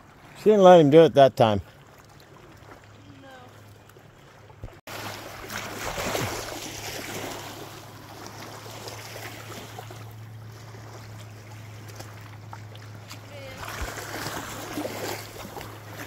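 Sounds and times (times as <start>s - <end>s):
rushing splashing water: 4.5s - 16.0s.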